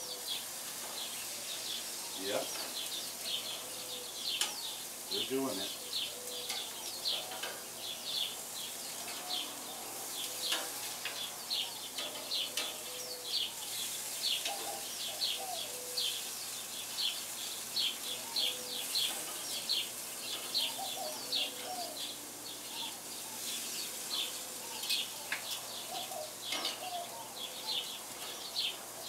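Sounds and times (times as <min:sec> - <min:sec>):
food sizzling on a grill: 0:00.0 - 0:29.0
small birds chirping: 0:00.0 - 0:29.0.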